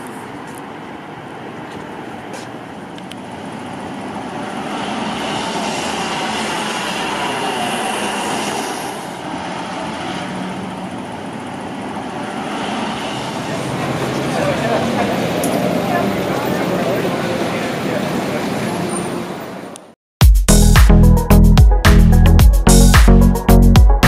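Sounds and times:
bus driving past: 0.0s - 20.0s
traffic noise: 0.0s - 20.0s.

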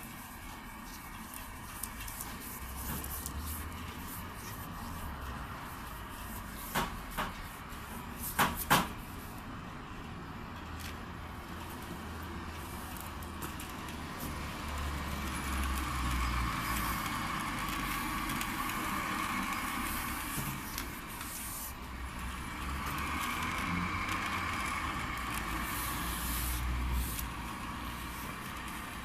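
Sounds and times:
cable stripping machine humming: 9.5s - 29.0s.

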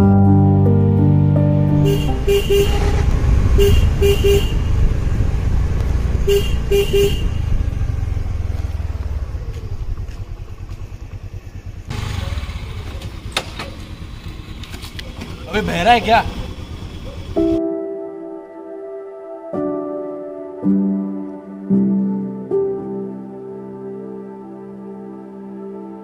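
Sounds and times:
motorcycle horn short beeps: 1.8s - 4.9s, 6.2s - 7.7s
motorcycle engine running: 1.8s - 17.6s.

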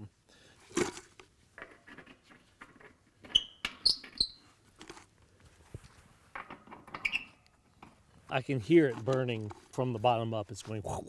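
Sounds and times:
scraping inside a can: 0.6s - 10.8s
short sharp squeaks: 3.2s - 4.5s, 6.9s - 7.4s.

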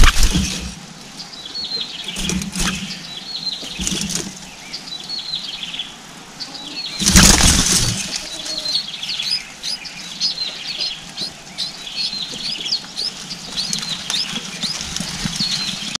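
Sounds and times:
wings fluttering: 0.0s - 0.9s, 2.1s - 3.0s, 3.6s - 4.5s, 7.0s - 8.8s, 12.4s - 16.0s
birds chirping high: 0.0s - 16.0s.

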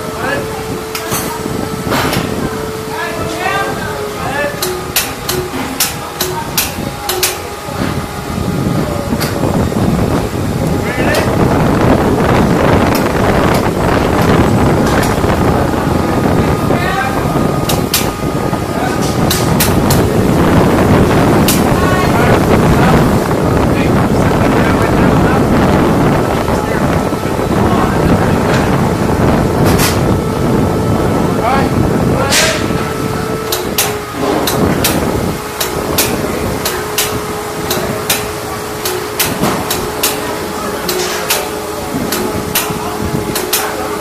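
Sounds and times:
wind rushing over microphone: 0.0s - 40.7s, 41.6s - 44.0s
sharp metallic clicks: 4.6s - 7.4s.

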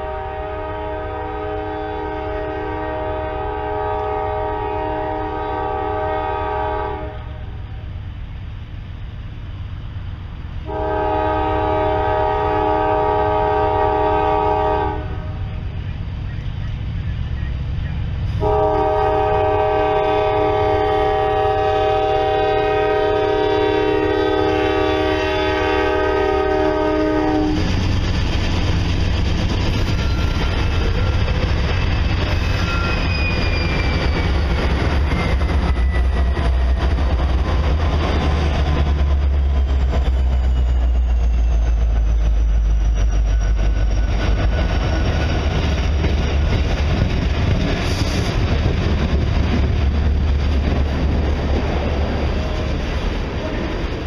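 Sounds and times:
train air horn: 0.0s - 7.9s, 10.6s - 15.6s, 18.3s - 27.7s
diesel locomotives rumbling: 0.0s - 54.0s
wheel-on-rail noise: 22.6s - 54.0s.

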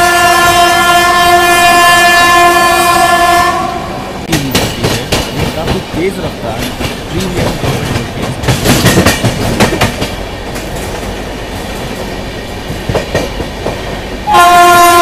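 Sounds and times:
loud train horn: 0.0s - 4.2s, 14.2s - 15.0s
train running noise: 0.0s - 15.0s
train wheels clattering over rail joints: 4.3s - 14.0s.

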